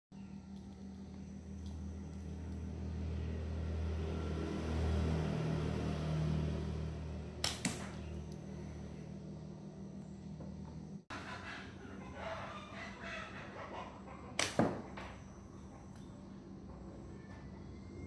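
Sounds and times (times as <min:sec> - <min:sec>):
steady low hum: 0:00.1 - 0:18.0
slingshot cracks: 0:07.4 - 0:08.1, 0:14.4 - 0:14.8.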